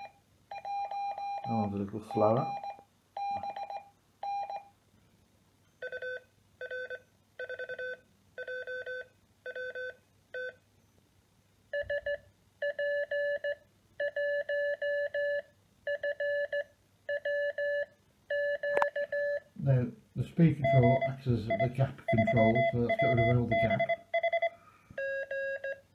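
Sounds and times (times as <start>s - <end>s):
morse code beeping: 0.0s - 4.6s, 11.8s - 19.4s, 20.6s - 25.8s.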